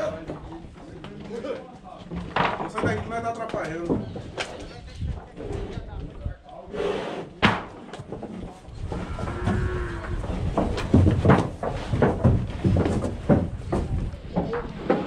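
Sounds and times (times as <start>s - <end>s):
hooves knocking against boards: 0.0s - 5.4s, 7.4s - 15.0s
cattle shuffling: 7.9s - 15.0s
cow mooing: 8.9s - 10.3s.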